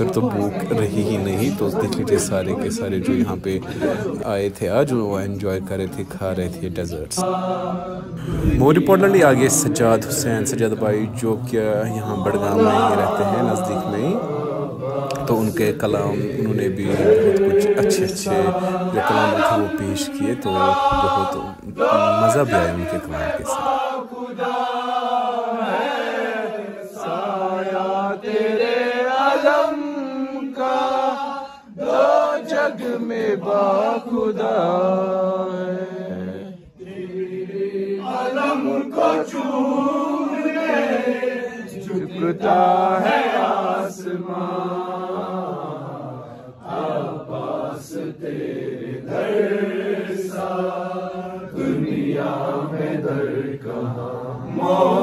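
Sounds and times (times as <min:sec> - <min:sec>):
man chanting: 0:08.2 - 0:23.7.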